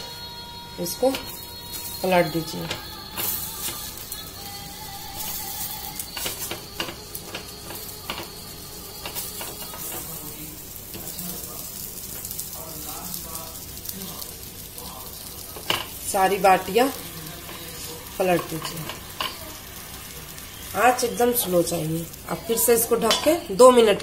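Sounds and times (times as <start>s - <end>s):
light sizzle: 0.0s - 24.0s
dough balls knocking in pan: 5.2s - 10.1s.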